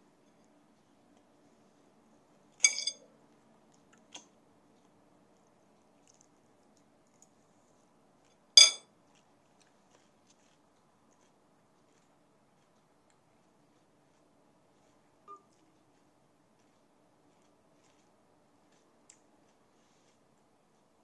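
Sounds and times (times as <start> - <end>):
fork clinking against plate: 2.6 - 3.0, 8.6 - 8.8.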